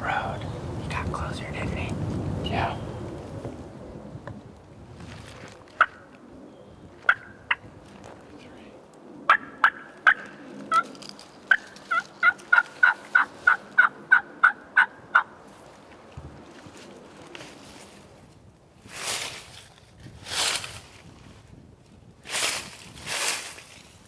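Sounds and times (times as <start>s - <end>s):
turkey yelping: 7.1s - 7.6s, 9.3s - 10.8s, 11.5s - 15.3s.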